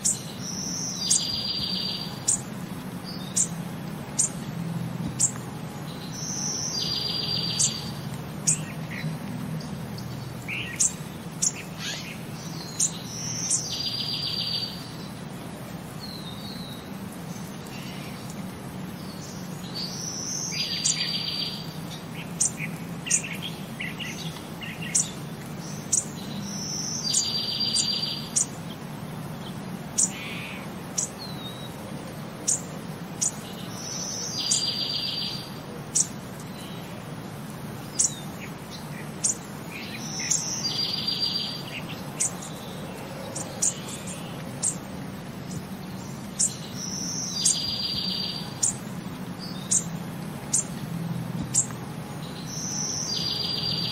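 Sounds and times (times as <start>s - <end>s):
bird whistle and trill: 0.0s - 2.4s, 6.0s - 9.0s, 25.8s - 28.5s, 39.2s - 42.6s, 46.4s - 48.8s, 52.4s - 53.9s
bird chirps: 0.0s - 4.5s, 5.1s - 15.2s, 19.0s - 28.6s, 32.5s - 37.0s, 37.9s - 50.8s, 51.5s - 53.9s.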